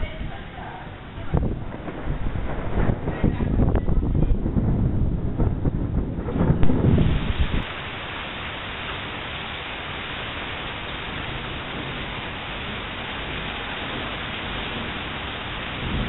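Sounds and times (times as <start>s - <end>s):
rain falling: 0.0s - 16.0s.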